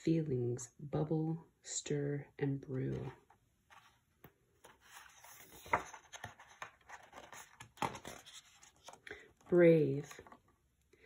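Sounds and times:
book page turning rustle: 2.9s - 9.1s.

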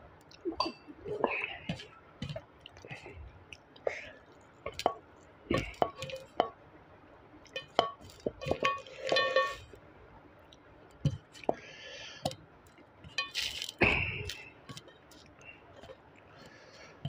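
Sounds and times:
chewing: 0.2s - 6.5s, 12.3s - 17.0s
fingers mixing rice: 0.3s - 6.6s, 7.4s - 9.7s, 10.5s - 17.0s
steel plate clink: 7.6s - 9.8s, 13.0s - 14.9s.

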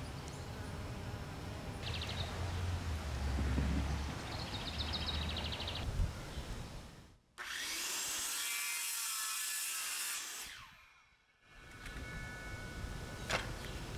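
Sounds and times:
circular saw cutting plastic pipe: 7.4s - 12.0s.

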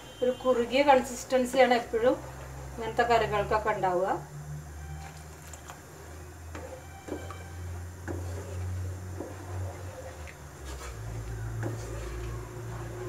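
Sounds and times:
wooden spatula scraping a pan: 5.9s - 13.0s.

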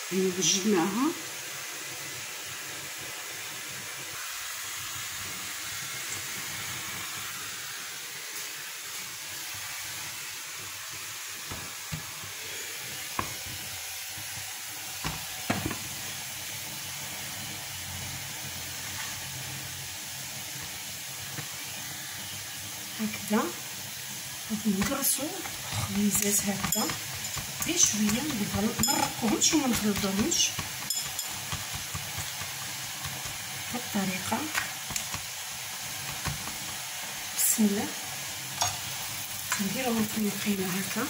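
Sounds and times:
stovetop burner hissing: 0.0s - 41.0s
kitchenware knocking on wooden board: 15.0s - 15.8s.

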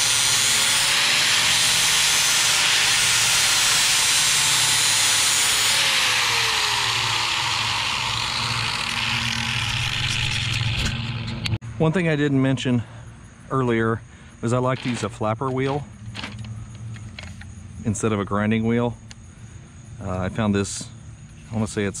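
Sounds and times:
angle grinder grinding steel: 0.0s - 11.6s, 14.6s - 16.4s.

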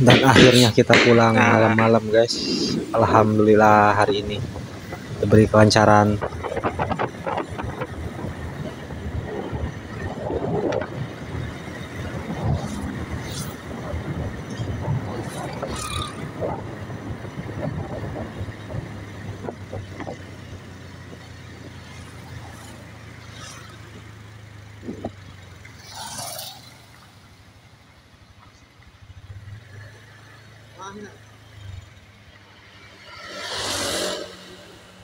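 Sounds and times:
wind on microphone: 0.0s - 22.6s, 24.7s - 25.2s
motorcycle engine: 0.0s - 35.0s.

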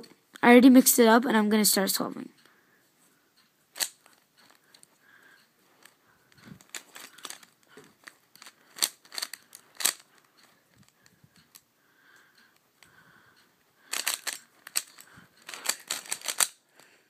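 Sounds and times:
puzzle cube clicking: 3.7s - 4.9s, 5.8s - 11.6s, 13.8s - 16.9s.

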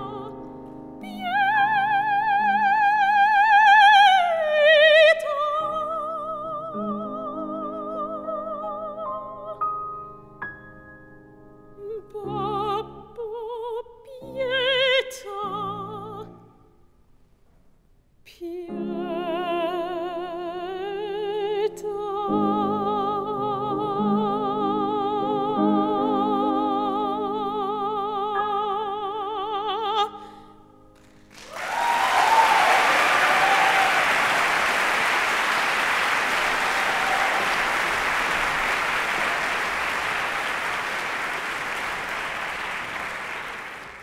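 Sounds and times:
soprano singing with vibrato: 0.0s - 0.4s, 1.0s - 9.6s, 11.8s - 16.5s, 18.3s - 30.4s
piano chords: 18.7s - 31.4s
audience applause: 31.3s - 44.0s.

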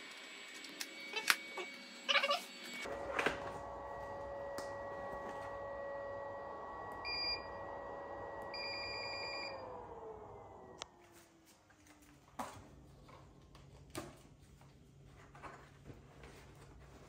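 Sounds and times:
respirator blower whining: 0.0s - 11.1s.

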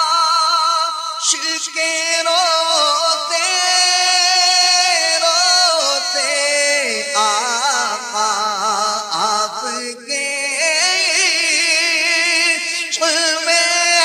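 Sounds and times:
person singing devotional song: 0.0s - 14.0s.

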